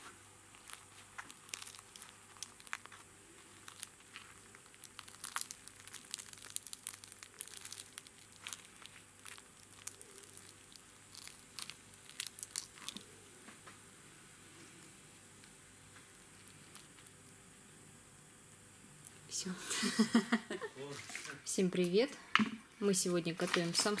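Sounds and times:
baked crust crackling when torn: 0.0 - 13.8, 14.6 - 17.2.

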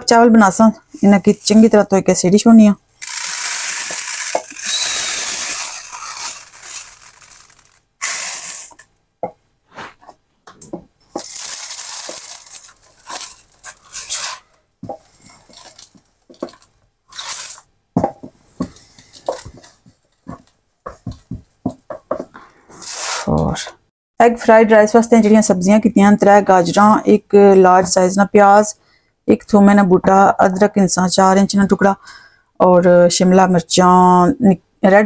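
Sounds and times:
dry rice pouring: 3.0 - 8.8, 11.1 - 14.4, 15.0 - 17.6.

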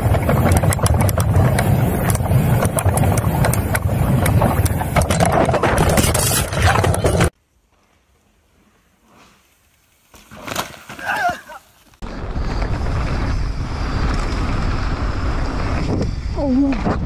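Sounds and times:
wind buffeting microphone: 0.0 - 6.1
bike clattering rattles: 0.0 - 7.4
bike tyre noise on dirt: 0.0 - 17.0.

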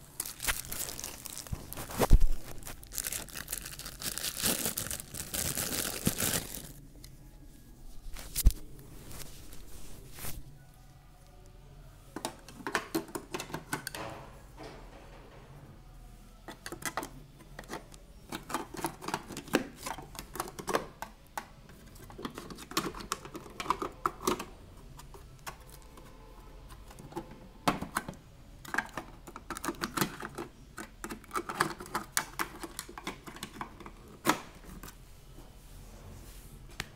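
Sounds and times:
plastic parts clicking and clattering: 12.2 - 15.1, 16.5 - 26.1, 26.7 - 34.9.

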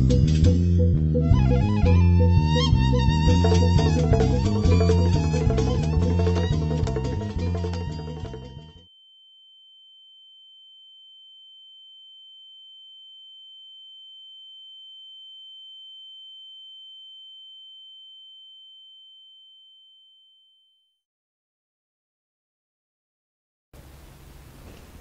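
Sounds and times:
high-pitched electronic tone: 0.2 - 8.8.

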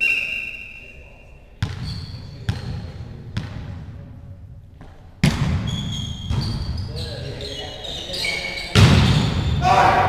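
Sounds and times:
high whistle note: 0.0 - 1.4
volleyball bouncing on hall floor: 1.6 - 4.0, 4.8 - 7.0, 8.7 - 9.7.

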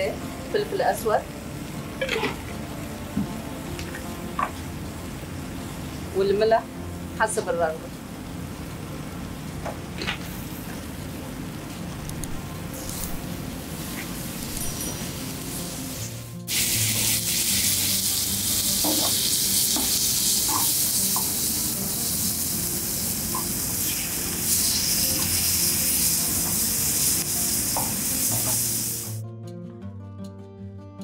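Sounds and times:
vegetables sizzling in oil: 12.7 - 29.2.

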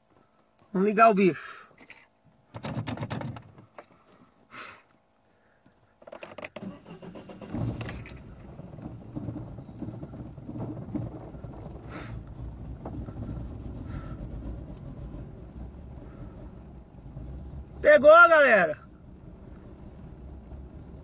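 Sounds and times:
car starter cranking: 6.0 - 18.4
car engine idling: 6.6 - 21.0.

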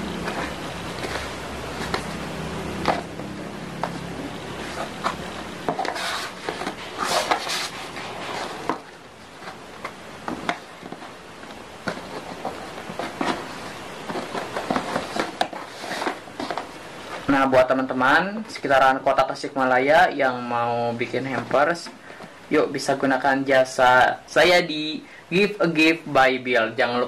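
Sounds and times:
hands rustling cardboard box: 0.0 - 17.4.

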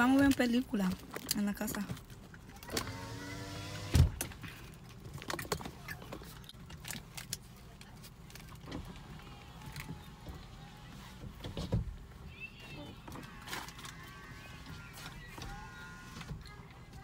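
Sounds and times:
electric motor whine: 2.8 - 4.1.

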